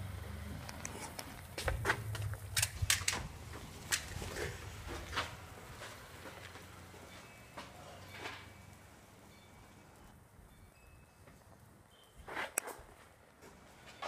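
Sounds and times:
sharp clicks and snaps: 0.7 - 3.2.

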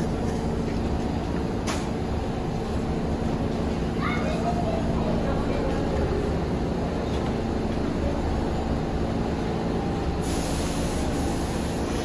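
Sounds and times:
train equipment humming: 0.0 - 12.0
high hiss: 10.2 - 12.0.

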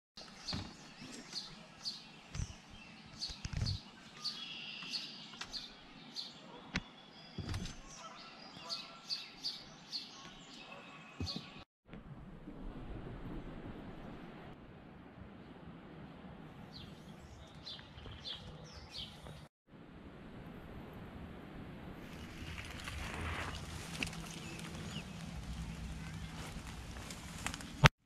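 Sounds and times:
songbirds chirping and singing: 0.2 - 11.6, 16.7 - 19.5, 23.7 - 27.9.

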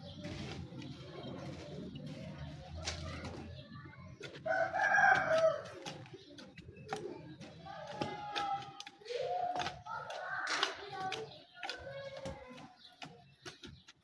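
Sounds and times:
rooster crowing: 4.5 - 5.6.

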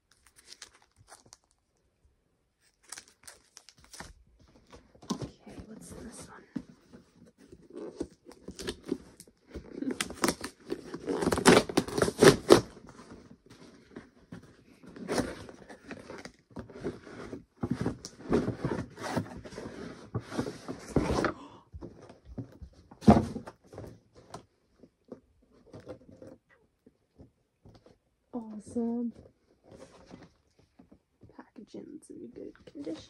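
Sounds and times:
packaging crinkling and scraping: 0.0 - 1.9, 2.6 - 28.0
cardboard box tearing: 7.4 - 14.0.

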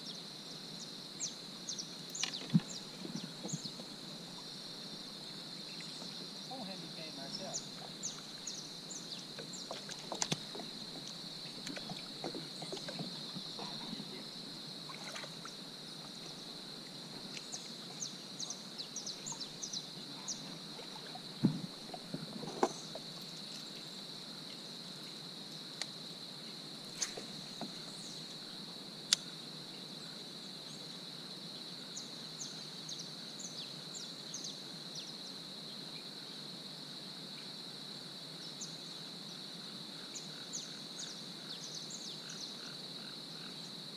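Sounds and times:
insect chorus: 0.0 - 43.9
gear knocking against kayak: 2.2 - 3.9, 9.4 - 13.8, 21.4 - 23.1.

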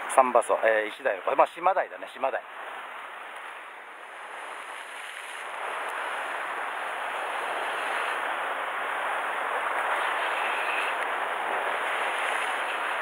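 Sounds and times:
surf breaking on rocks: 4.0 - 13.0.

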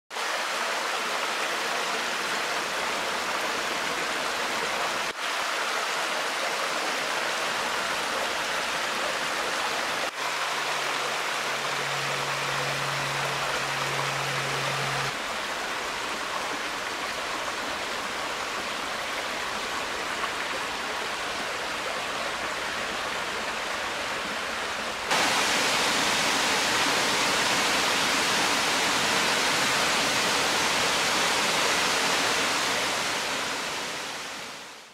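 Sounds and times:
waterfall splashing: 25.0 - 34.9.

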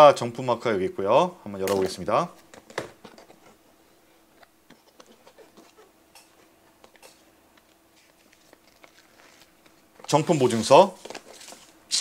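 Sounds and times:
paper inserts handled: 4.3 - 11.8.

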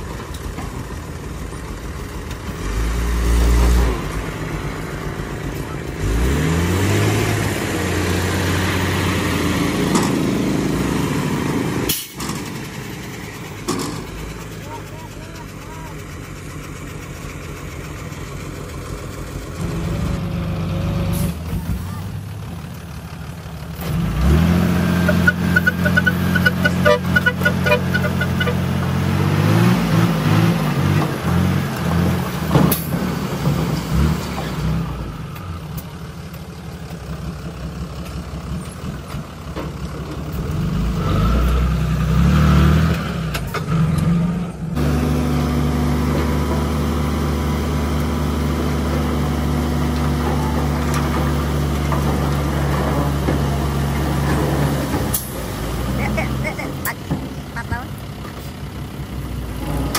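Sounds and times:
diesel truck engine revving: 0.0 - 59.9.

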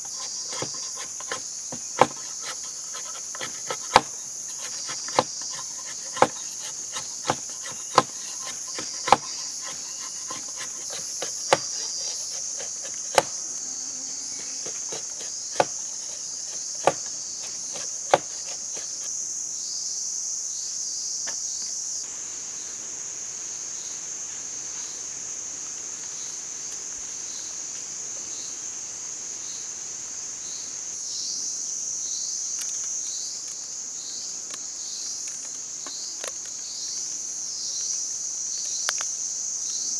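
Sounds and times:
high insect chorus: 0.0 - 39.9
knife chopping bamboo on log: 0.1 - 13.4, 14.6 - 19.1.

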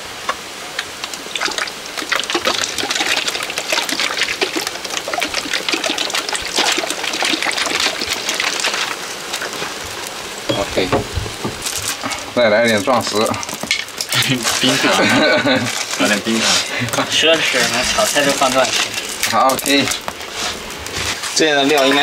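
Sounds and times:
liquid splashing and crackling: 0.2 - 22.0
sauce pouring into pot: 1.1 - 14.7.

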